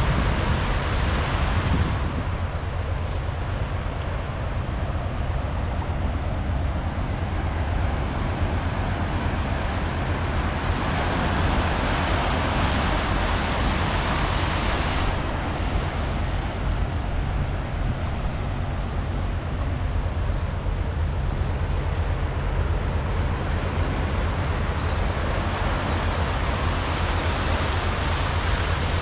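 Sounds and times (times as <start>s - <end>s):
steady low rumble: 0.0s - 29.0s.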